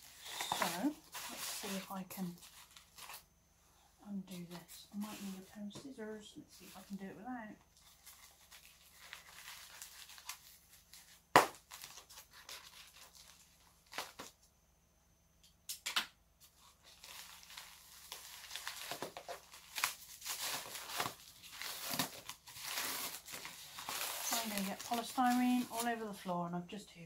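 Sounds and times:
polystyrene snapping: 8.0s - 14.4s, 15.7s - 25.9s
packaging being torn open: 16.9s - 25.0s.

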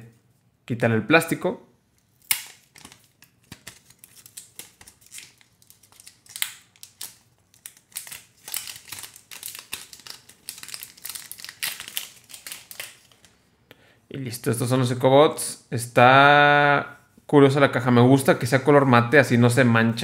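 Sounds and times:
plastic film crinkling: 2.2s - 13.4s.

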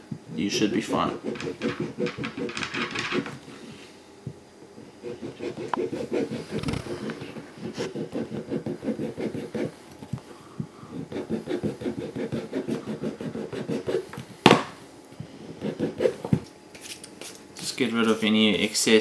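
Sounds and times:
file rasping on rubber: 1.0s - 3.2s, 5.0s - 9.8s, 10.9s - 14.1s, 15.5s - 16.3s.

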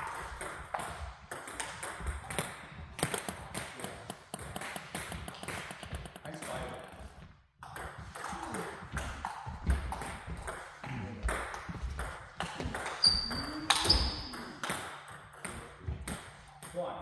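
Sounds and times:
table tennis balls clicking: 0.0s - 7.0s, 7.6s - 16.8s
short high squeaks: 13.0s - 14.3s.

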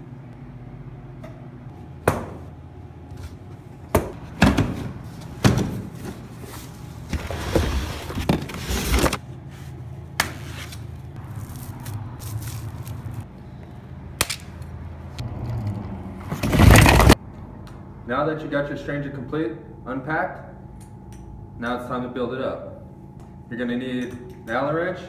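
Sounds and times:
packaging rustling: 11.3s - 13.2s.

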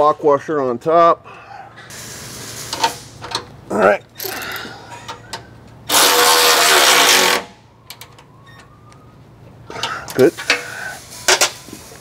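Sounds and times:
cordless power tool driving nut: 5.9s - 7.4s.

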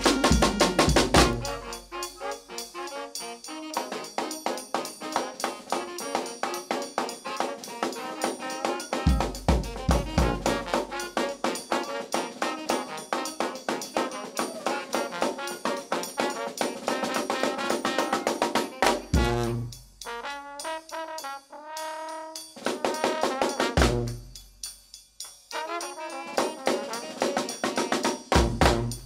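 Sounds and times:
heavy bass drum hits: 0.0s - 1.5s, 19.2s - 19.6s, 28.4s - 29.0s
steady drum beat: 0.0s - 2.7s, 3.5s - 29.0s
saxophone: 0.0s - 20.9s, 25.5s - 29.0s
trombone: 0.0s - 24.4s, 25.5s - 29.0s
trumpet: 0.0s - 24.5s, 25.5s - 29.0s.

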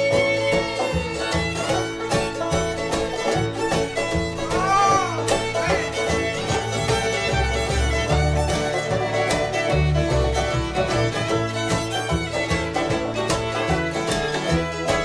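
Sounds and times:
banjo: 0.0s - 15.0s
bass line: 0.0s - 15.0s
fiddle: 0.0s - 15.0s.

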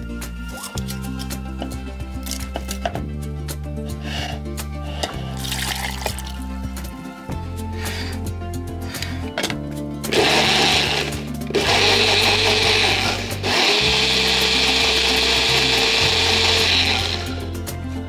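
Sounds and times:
background music: 0.0s - 18.0s
blender motor whirring: 10.1s - 17.6s.

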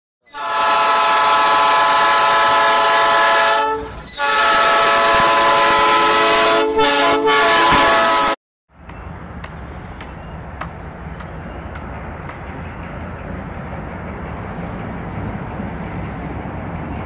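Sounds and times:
locomotive air horn: 0.3s - 8.4s.

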